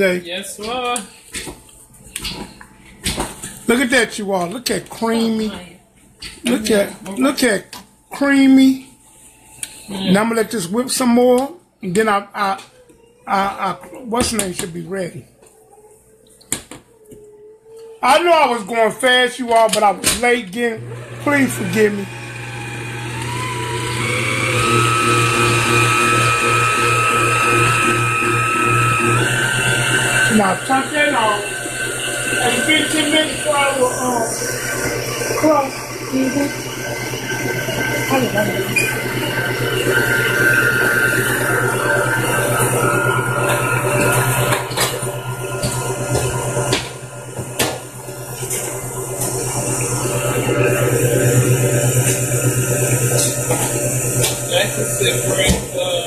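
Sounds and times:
stand mixer whining: 0:18.1 - 0:56.0.

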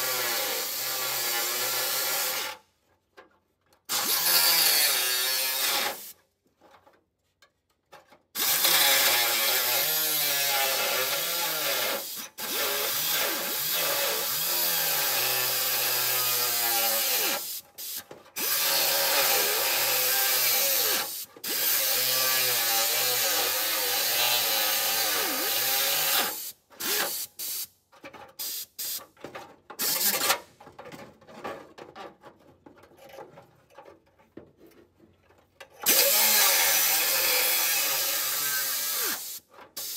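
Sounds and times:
power tool cutting steel: 0:00.0 - 0:02.6, 0:03.9 - 0:06.2, 0:08.4 - 0:27.7, 0:29.8 - 0:30.4, 0:35.8 - 0:39.9.

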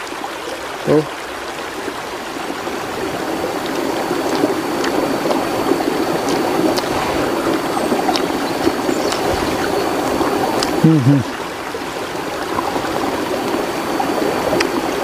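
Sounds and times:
water rushing over rocks: 0:00.0 - 0:15.0.

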